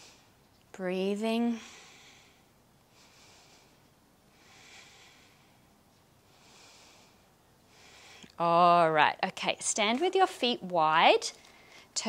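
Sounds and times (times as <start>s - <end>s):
woman breathing softly: 0.0s - 0.4s, 1.5s - 8.4s, 11.4s - 12.0s.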